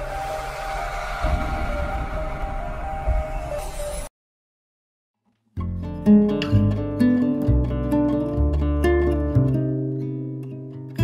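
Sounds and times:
low bass line: 5.6s - 9.8s
acoustic guitar plucked notes: 5.6s - 11.0s.

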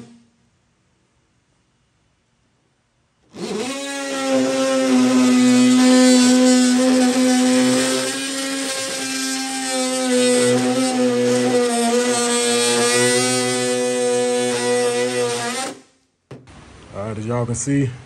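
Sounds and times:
electric tool cutting sheet metal: 0.0s - 0.2s, 3.3s - 15.9s.

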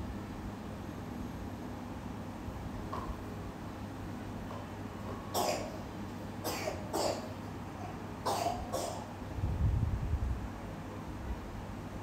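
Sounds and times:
person coughing: 5.4s - 5.8s, 6.4s - 7.3s, 8.3s - 9.1s.

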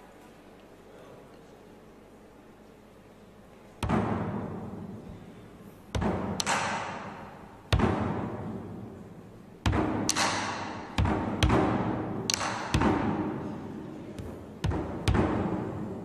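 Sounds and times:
large drum struck with sticks: 5.9s - 8.9s, 9.6s - 16.0s.

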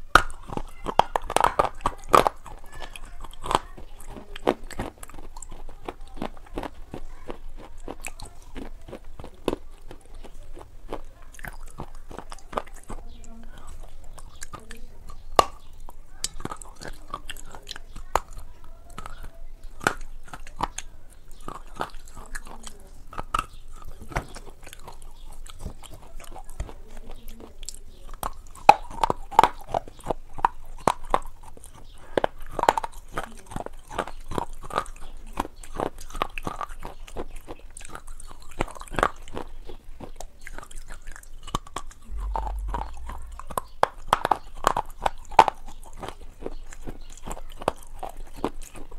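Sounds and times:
person chewing crunchy food: 0.0s - 48.9s.

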